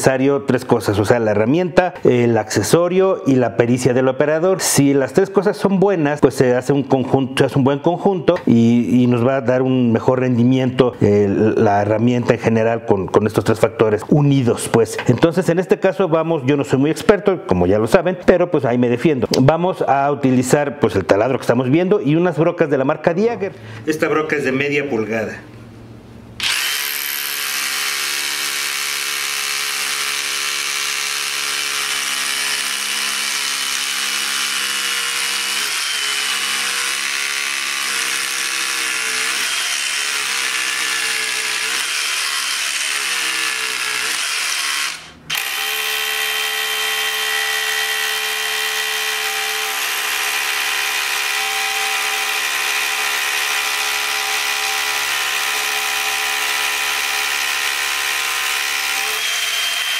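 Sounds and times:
rotary hammer drilling into concrete: 0:26.4 - 0:59.9.

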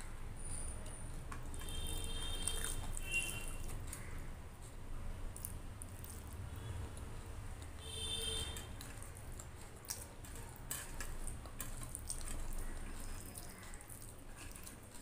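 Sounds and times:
rice squishing on steel plate: 0:01.2 - 0:04.6, 0:05.3 - 0:15.0
chewing smacks: 0:01.3 - 0:04.2, 0:05.3 - 0:07.8, 0:08.6 - 0:15.0.

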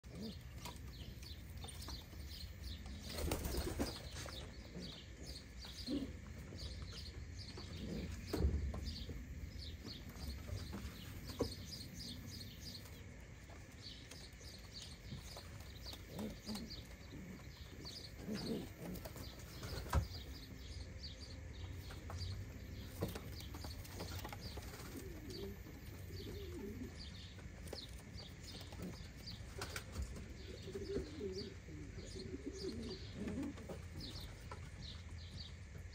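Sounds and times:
pigeons cooing: 0:00.0 - 0:13.0, 0:13.8 - 0:34.7
small birds chirping: 0:00.0 - 0:35.9.

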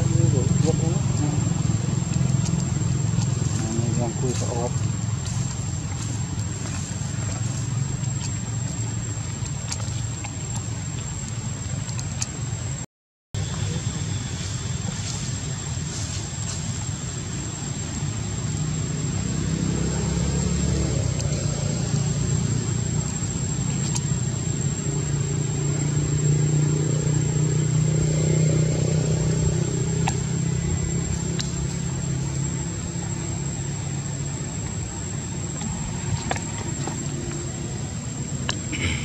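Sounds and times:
vehicle engine droning past: 0:00.0 - 0:08.3, 0:18.1 - 0:35.0.

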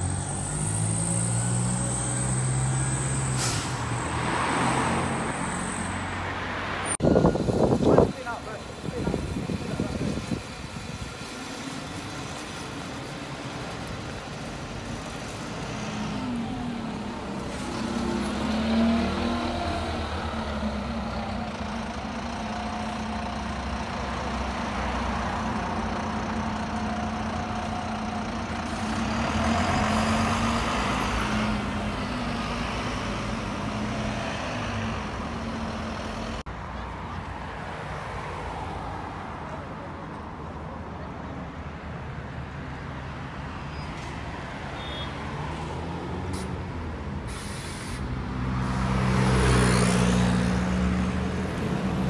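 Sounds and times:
bus engine running: 0:07.0 - 0:36.5.

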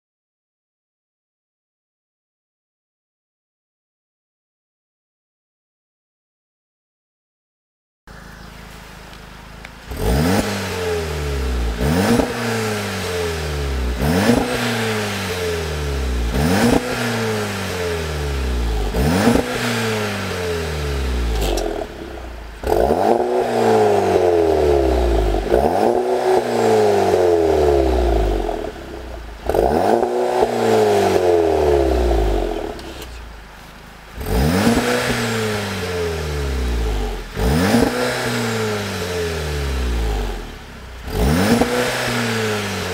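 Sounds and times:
car engine revving: 0:08.1 - 0:33.4, 0:34.0 - 0:42.9.

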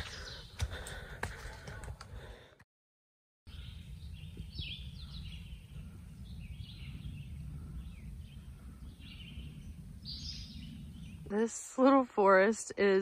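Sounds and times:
songbirds singing: 0:00.0 - 0:01.0, 0:03.5 - 0:12.9
steady low rumble: 0:03.6 - 0:11.5.

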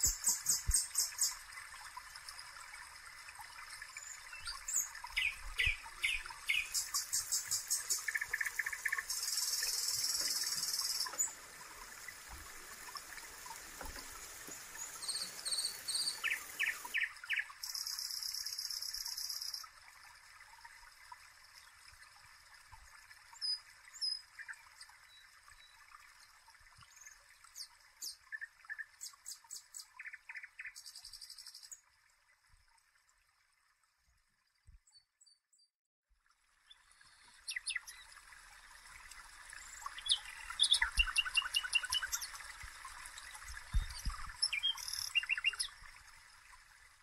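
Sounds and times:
steady hiss: 0:00.0 - 0:01.4, 0:06.5 - 0:17.0
birds chirping and trilling: 0:04.0 - 0:11.4, 0:14.2 - 0:19.5, 0:39.7 - 0:42.4, 0:43.7 - 0:45.8.

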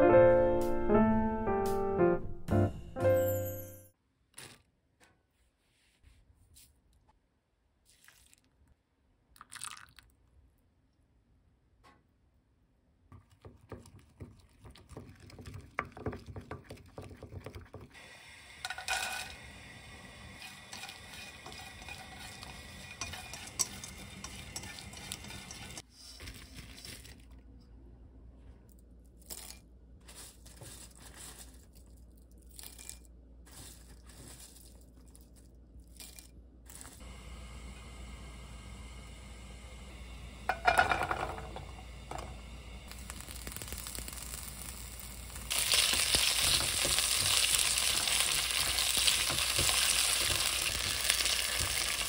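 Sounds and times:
chopsticks stirring shrimp in pan: 0:20.3 - 0:25.9, 0:45.5 - 0:52.0.

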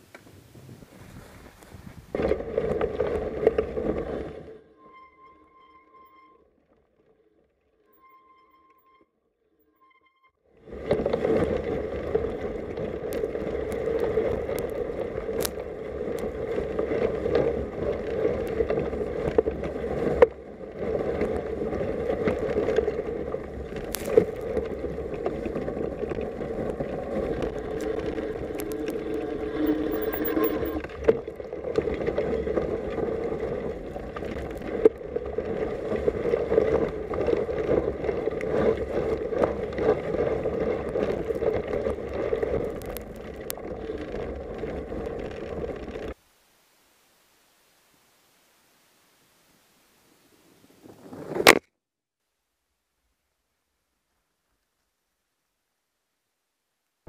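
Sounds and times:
bike tyre rolling in snow: 0:00.0 - 0:08.7, 0:10.5 - 0:51.6
bike rattling: 0:00.9 - 0:04.7, 0:10.7 - 0:46.2.

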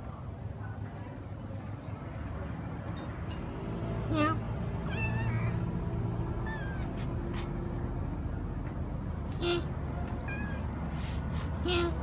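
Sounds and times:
cat meowing: 0:04.8 - 0:05.6, 0:06.4 - 0:07.0, 0:10.2 - 0:10.7.

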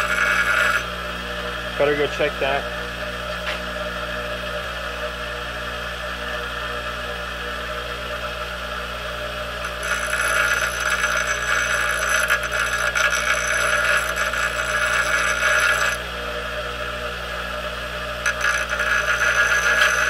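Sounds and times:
metal grinding with high ring: 0:00.0 - 0:02.7, 0:09.5 - 0:16.1, 0:18.1 - 0:20.0
bench grinder running: 0:00.0 - 0:20.0.

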